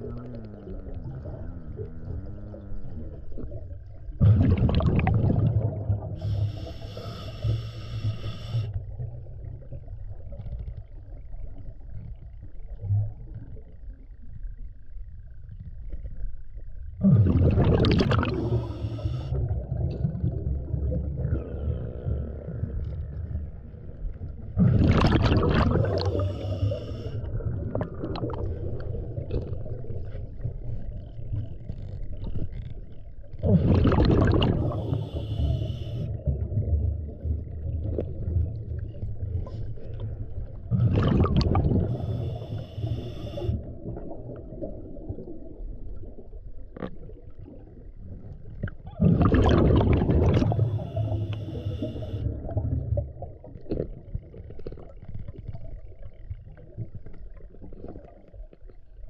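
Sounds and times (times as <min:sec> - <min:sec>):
low underwater rumble: 0:00.0 - 0:59.0
diver breathing through regulator: 0:06.1 - 0:08.9, 0:18.2 - 0:19.5, 0:25.8 - 0:27.4, 0:33.7 - 0:36.2, 0:40.8 - 0:43.8, 0:50.4 - 0:52.4.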